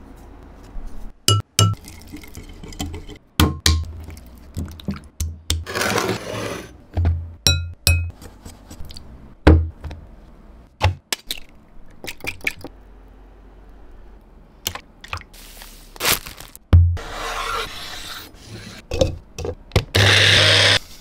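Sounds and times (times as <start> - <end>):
metal spoon tapping glass bowl: 1.3 - 1.8, 7.5 - 8.1
plastic bag crinkling: 16.0 - 16.6.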